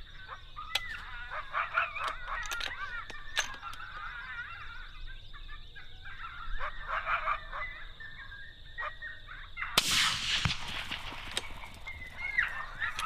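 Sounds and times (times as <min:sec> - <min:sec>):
coyotes yipping and howling: 0:00.0 - 0:13.0
rifle shot: 0:09.8 - 0:13.0.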